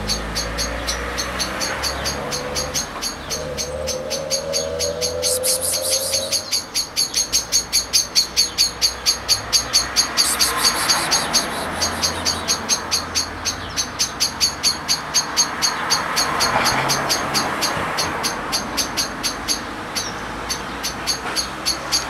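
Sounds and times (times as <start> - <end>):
rapid high chirps: 4.1 - 13.2.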